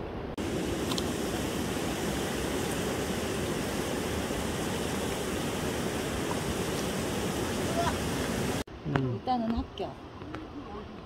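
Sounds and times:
flowing river water rushing: 0.0s - 8.7s.

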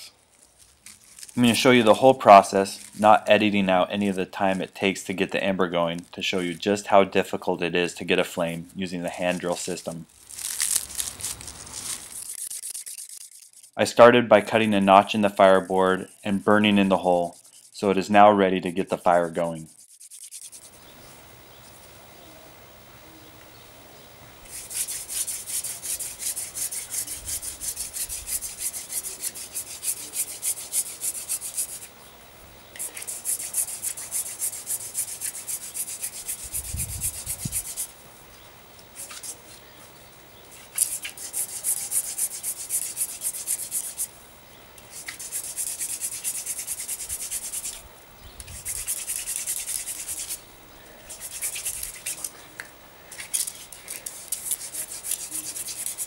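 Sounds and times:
spindle rubbing on wood: 10.5s - 13.8s, 14.6s - 18.0s, 19.5s - 20.8s, 24.5s - 31.9s, 32.8s - 37.9s, 39.0s - 39.4s, 40.6s - 44.1s, 44.9s - 47.8s, 48.4s - 50.4s, 51.1s - 52.3s, 53.3s - 56.0s.

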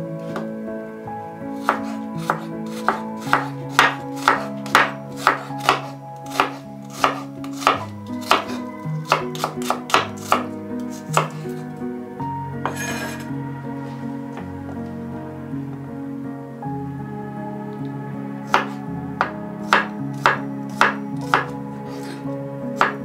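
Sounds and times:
soft background music: 0.0s - 23.0s
knife slicing onion on cutting board: 1.6s - 11.5s, 18.5s - 18.8s, 19.7s - 22.2s.

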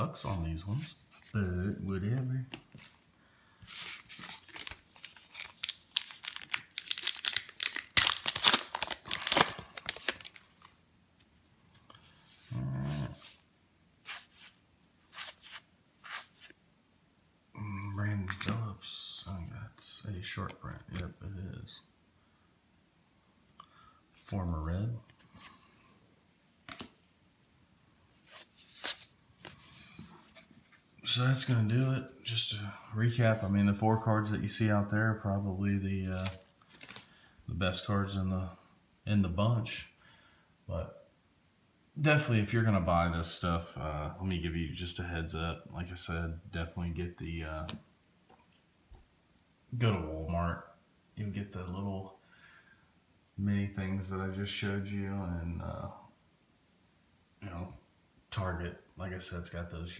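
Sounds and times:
plastic wrapper tearing and crinkling: 3.7s - 10.7s, 36.1s - 37.0s
cards rustling and tapping on table: 26.6s - 27.0s, 36.2s - 37.1s.

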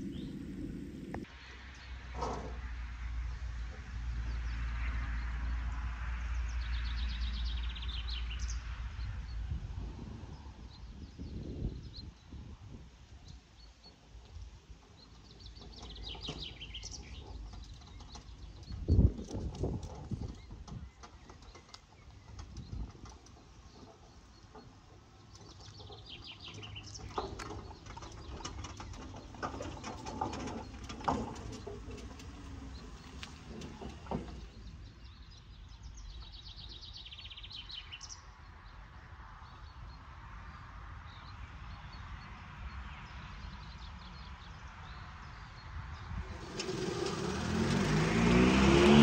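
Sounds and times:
steady low rumble: 0.0s - 1.3s
birds chirping: 0.0s - 1.8s, 14.8s - 38.8s
faint ride-on mower: 0.0s - 9.1s, 13.0s - 49.0s.

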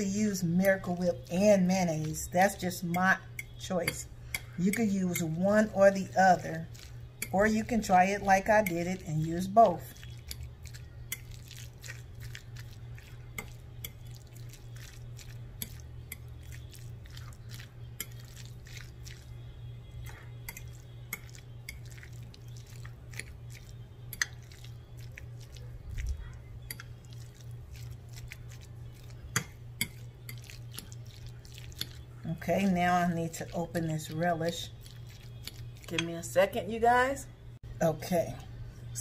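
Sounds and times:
steady low hum: 0.0s - 39.0s
fork clicking and scraping glass: 10.1s - 10.5s, 18.0s - 18.4s, 20.0s - 22.1s, 24.1s - 24.5s, 26.6s - 27.0s, 29.3s - 30.9s.

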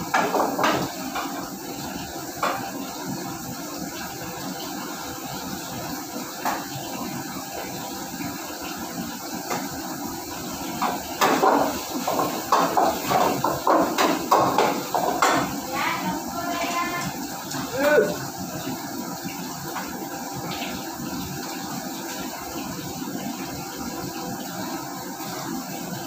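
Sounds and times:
cookware and utensils clattering: 0.0s - 1.4s, 10.8s - 15.7s
commercial kitchen background noise: 0.0s - 26.0s.

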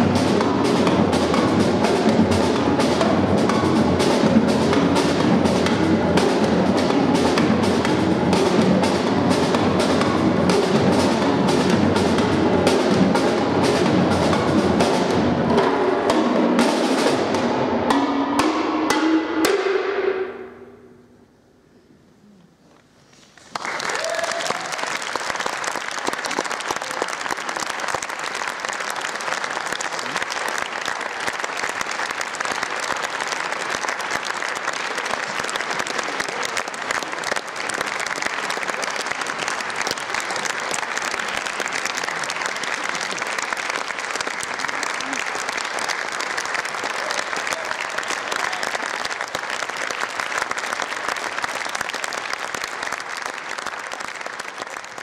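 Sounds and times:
audience applauding: 23.4s - 55.0s.

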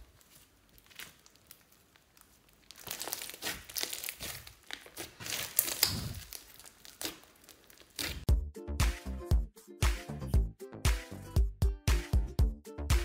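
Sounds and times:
slime crackling and popping: 0.0s - 8.3s
sticky slime squelches: 0.0s - 8.3s.

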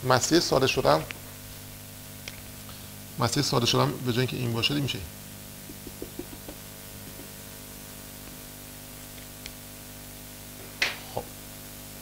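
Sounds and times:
electrical hum and hiss: 0.0s - 12.0s.

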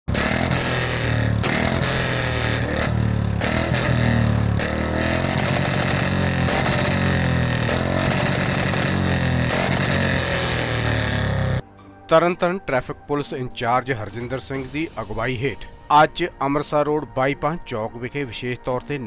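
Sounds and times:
motorcycle engine revving: 0.0s - 11.6s.

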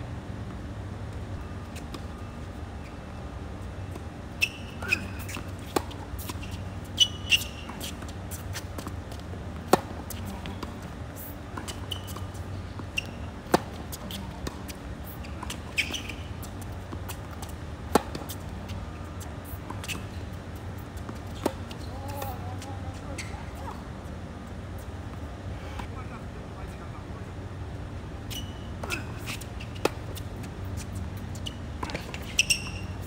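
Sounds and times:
shoe squeaks: 1.6s - 3.1s, 4.3s - 8.9s, 9.7s - 23.8s, 28.3s - 33.0s
racket striking tennis ball: 9.6s - 10.9s, 13.0s - 18.4s.

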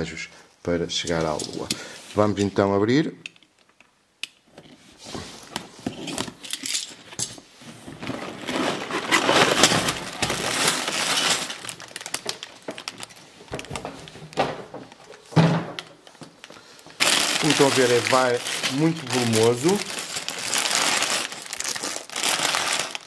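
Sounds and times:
plastic bags crinkling: 7.8s - 23.0s.

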